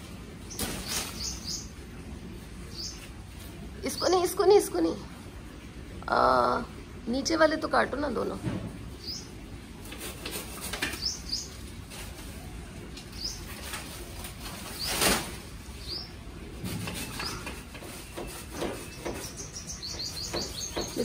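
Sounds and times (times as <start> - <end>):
leaves rustling and crackling: 0.0 - 5.0, 8.9 - 18.9
small birds chirping: 0.4 - 5.0, 8.9 - 21.0.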